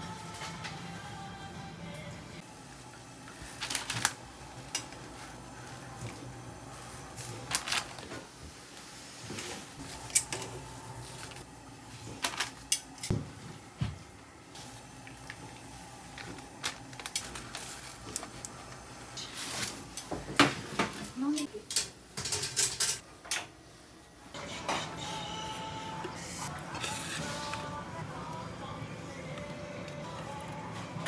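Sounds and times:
metal tongs and pots clattering: 0:21.3 - 0:23.5.

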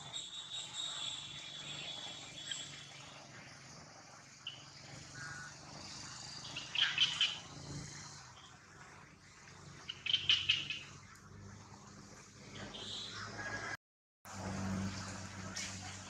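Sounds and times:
bird chirps: 0:00.0 - 0:03.2, 0:05.9 - 0:07.5, 0:09.9 - 0:11.0, 0:12.6 - 0:13.2.

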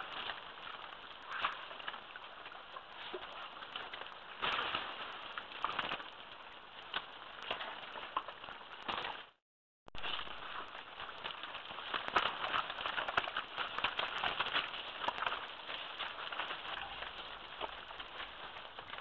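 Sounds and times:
small wet clicks and crackles: 0:00.0 - 0:09.4, 0:10.0 - 0:19.0
mud squelching and sloshing: 0:10.0 - 0:19.0.

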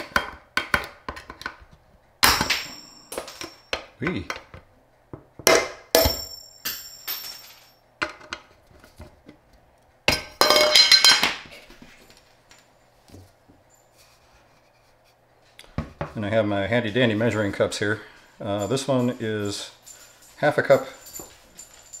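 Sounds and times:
ringing metal-on-metal clinking: 0:02.2 - 0:04.0, 0:05.9 - 0:07.8, 0:18.4 - 0:22.0.

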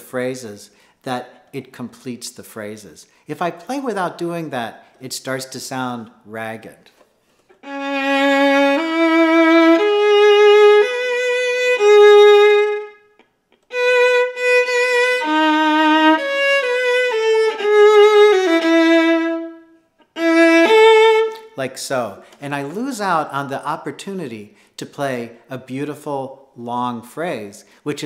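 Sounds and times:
solo viola bowed with vibrato: 0:07.6 - 0:13.0, 0:13.7 - 0:21.4.

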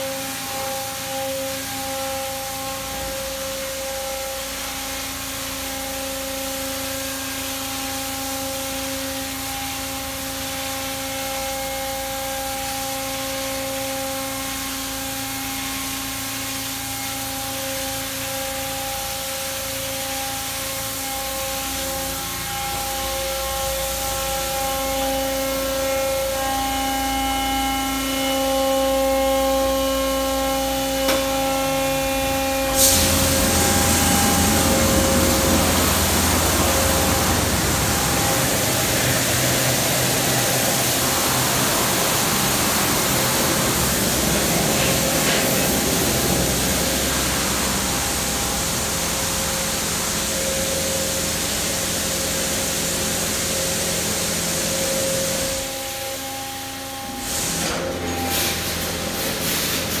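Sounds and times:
car wash motors humming: 0:00.0 - 1:00.0
spraying water hiss: 0:31.2 - 1:00.0.

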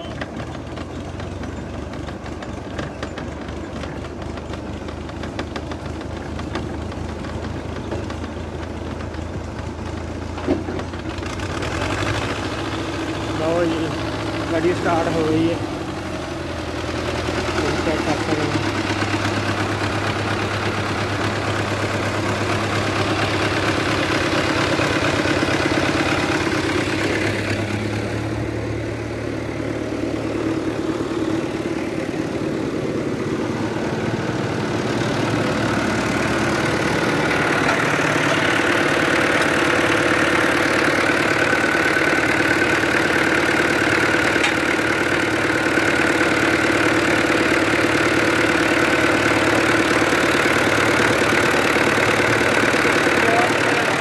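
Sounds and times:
diesel tractor engine idling: 0:00.0 - 0:54.0.

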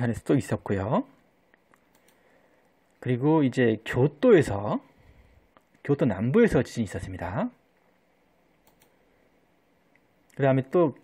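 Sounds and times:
faint computer mouse clicks: 0:01.5 - 0:02.2, 0:08.6 - 0:09.0.

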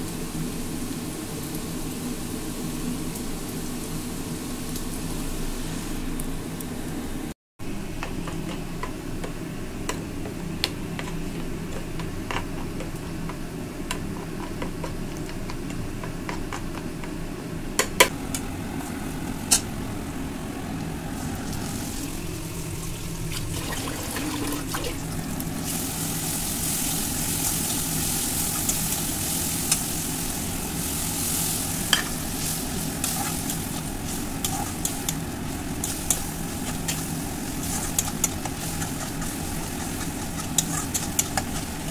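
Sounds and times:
chicken sizzling in a pan: 0:00.0 - 0:06.2, 0:18.1 - 0:41.9
low hum: 0:18.1 - 0:41.9
spatula stirring: 0:21.2 - 0:41.9.

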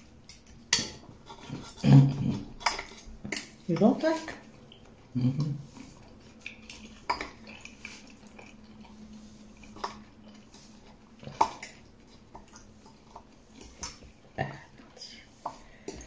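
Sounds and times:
cutlery clinking on a plate: 0:00.7 - 0:01.7, 0:02.6 - 0:03.5.

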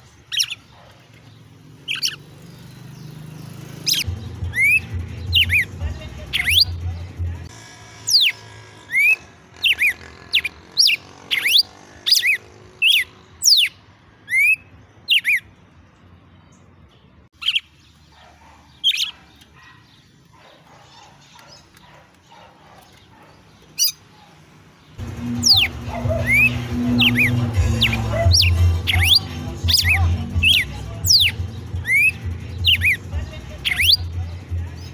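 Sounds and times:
background music: 0:03.5 - 0:09.3, 0:25.0 - 0:34.9.

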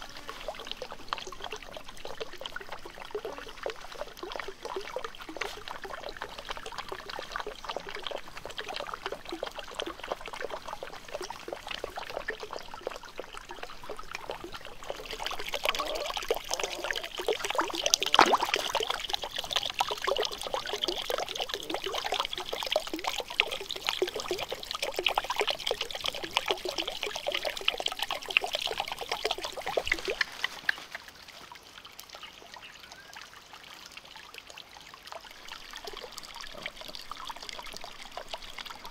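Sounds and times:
water pouring into a pond: 0:00.0 - 0:38.9.

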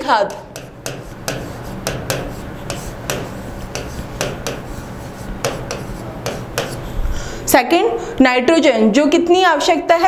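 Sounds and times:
marker pen on whiteboard: 0:00.0 - 0:07.0
steady low hum: 0:00.0 - 0:09.0.

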